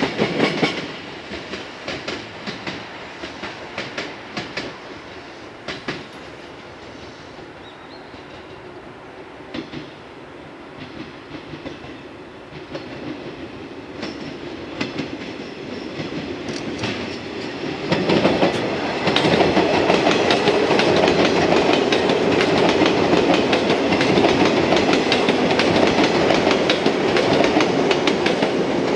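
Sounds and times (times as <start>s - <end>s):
train running past: 0.0s - 28.9s
wheels clicking over rail joints: 10.8s - 28.9s.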